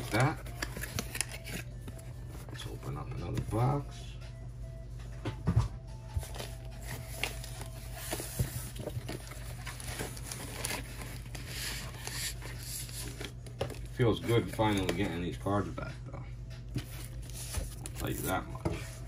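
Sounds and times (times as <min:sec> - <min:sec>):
tape tearing: 0:00.0 - 0:01.7
cardboard rustling and crinkling: 0:00.0 - 0:03.7, 0:06.2 - 0:15.3, 0:16.8 - 0:19.0.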